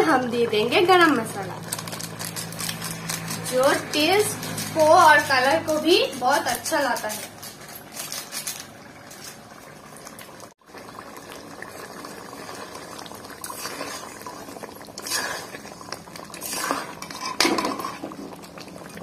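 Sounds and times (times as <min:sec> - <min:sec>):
curry simmering and bubbling: 0:07.4 - 0:19.0
spatula scraping and clinking pan: 0:16.4 - 0:18.1.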